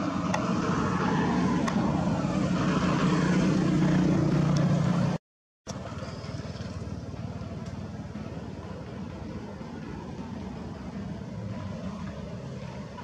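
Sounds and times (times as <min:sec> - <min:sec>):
vehicle engine running: 0:03.8 - 0:13.0.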